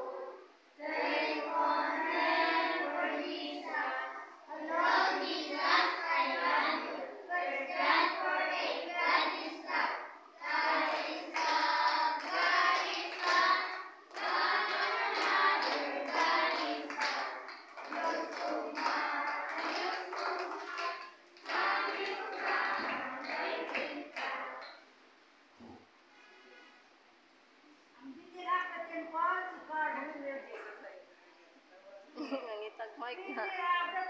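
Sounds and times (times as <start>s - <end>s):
children singing: 0.0s - 24.8s.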